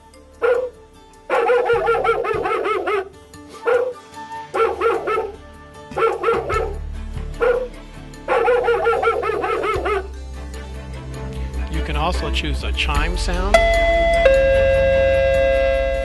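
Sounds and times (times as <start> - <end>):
recorded dog barking from speaker: 0.4 - 6.8, 7.4 - 10.1.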